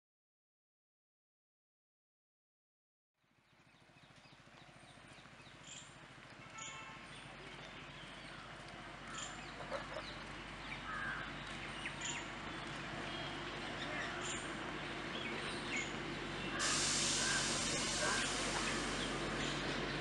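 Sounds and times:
birds chirping: 3.5 - 20.0
distant diesel locomotive hum: 3.8 - 20.0
crows cawing: 10.8 - 11.4, 17.2 - 18.3
steady hiss: 16.5 - 20.0.

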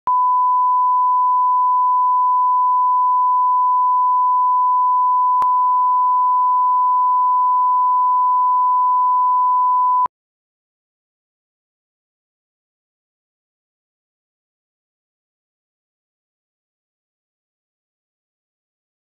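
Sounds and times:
sine-wave reference tone: 0.1 - 10.1.

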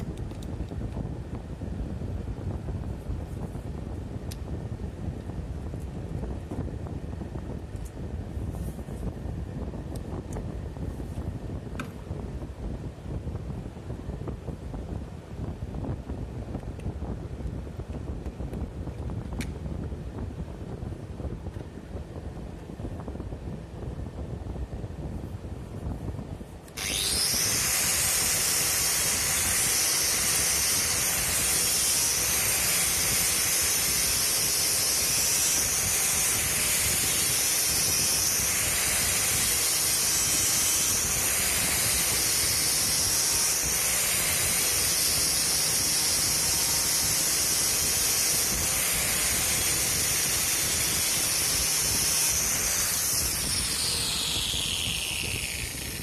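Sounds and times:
angle grinder whining: 26.7 - 56.0
wire brush scrubbing wood: 26.8 - 56.0.

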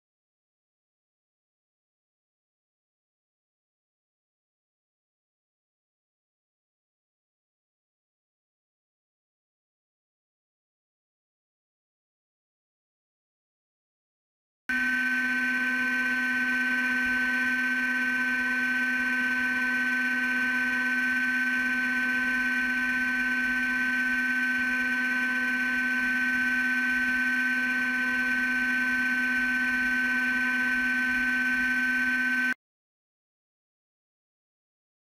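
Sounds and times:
drill spindle motor whine: 14.7 - 32.6.

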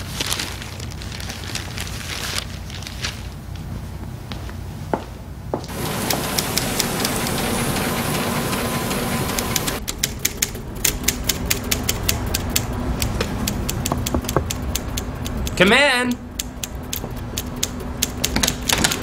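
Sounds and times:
steady hiss: 5.7 - 9.8
typewriter keys clacking: 5.7 - 19.0.

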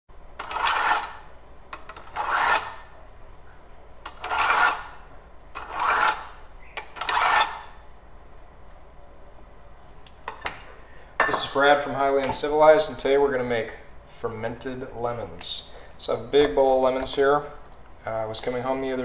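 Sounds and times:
knife rasping through sharpener: 0.4 - 1.2, 2.0 - 2.8, 4.1 - 5.0, 5.6 - 7.7.

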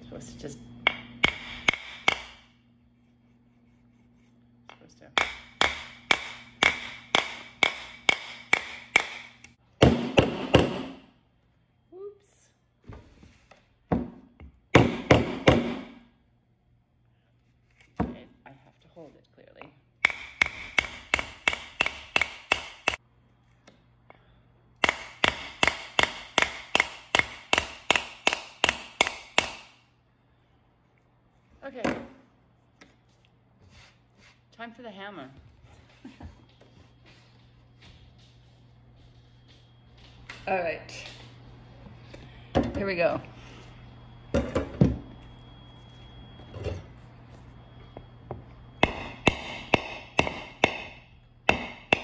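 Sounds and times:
knife striking coconut shell: 48.8 - 52.0.

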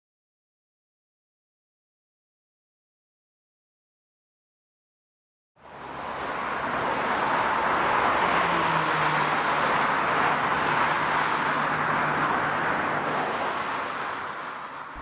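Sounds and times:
road traffic: 5.6 - 15.0.

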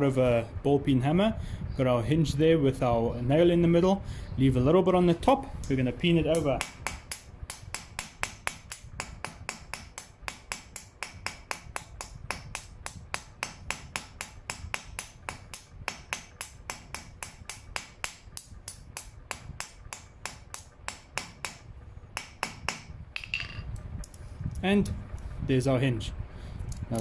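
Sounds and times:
hammer tapping nail on anvil: 6.3 - 21.6, 22.2 - 23.6.

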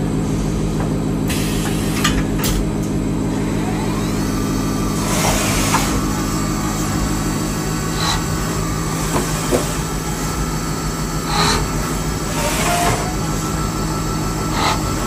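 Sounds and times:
machine hum: 0.0 - 15.0
metallic milling cutting noise: 3.2 - 15.0.

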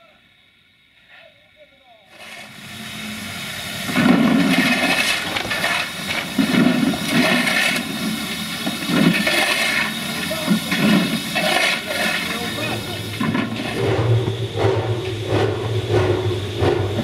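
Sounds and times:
coal shovelled into metal buckets: 2.1 - 2.7, 3.7 - 13.8.

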